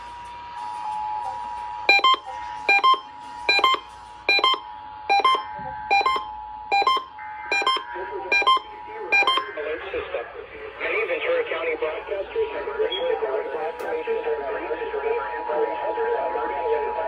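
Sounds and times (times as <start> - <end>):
short alert beeps: 1.9 - 9.5
two-tone alert signal: 1.9 - 9.6.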